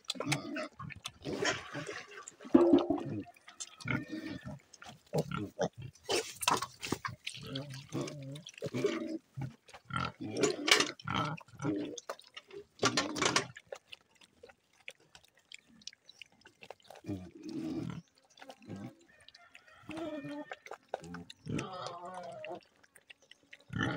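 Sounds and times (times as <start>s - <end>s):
wet eating noises: 0.0s - 23.9s
piglets grunting: 19.9s - 22.8s, 23.6s - 23.9s.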